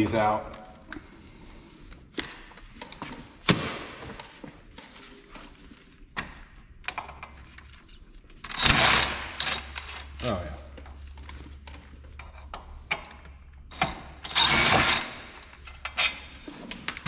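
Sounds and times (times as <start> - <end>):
impact wrench spinning bolt: 8.4 - 10.1, 13.7 - 16.2.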